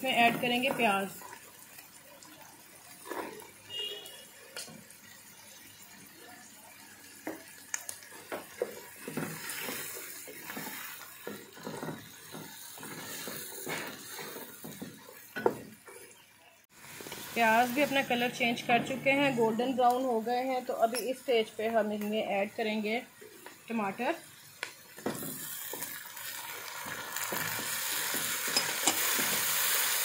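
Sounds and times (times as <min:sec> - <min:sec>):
food sizzling in a pan: 0:00.0 - 0:30.0
spatula scraping a pan: 0:08.5 - 0:16.1.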